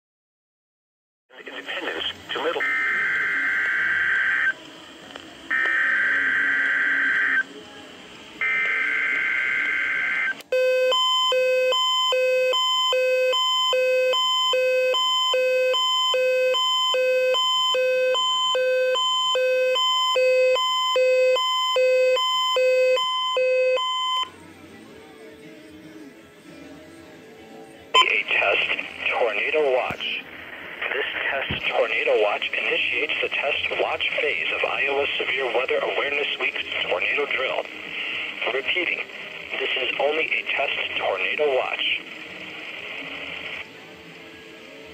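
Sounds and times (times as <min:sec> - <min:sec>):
two-tone electronic alarm beeping: 0:02.6 - 0:04.5, 0:05.5 - 0:07.5, 0:08.4 - 0:24.3, 0:28.0 - 0:28.3.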